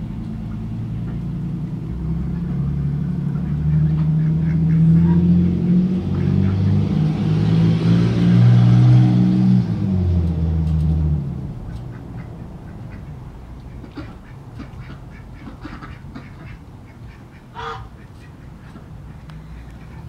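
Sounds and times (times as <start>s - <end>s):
vehicle engine passing by: 0.0s - 16.6s.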